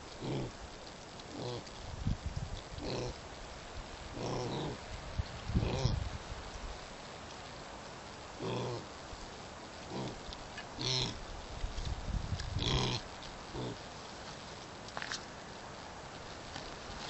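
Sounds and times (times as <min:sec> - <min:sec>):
pigs grunting: 0:00.0 - 0:00.6, 0:01.3 - 0:01.8, 0:02.8 - 0:03.2, 0:04.1 - 0:04.8, 0:05.6 - 0:06.0, 0:08.4 - 0:08.9, 0:09.8 - 0:11.2, 0:12.5 - 0:13.8.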